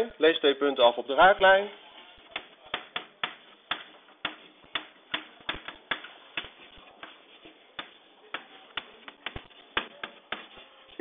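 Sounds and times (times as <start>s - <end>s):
chalk tapping on a blackboard: 2.2s - 10.8s.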